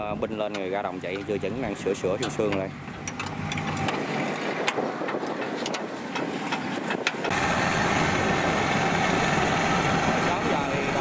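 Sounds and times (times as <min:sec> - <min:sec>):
combine harvester engine running: 0:02.2 - 0:11.0.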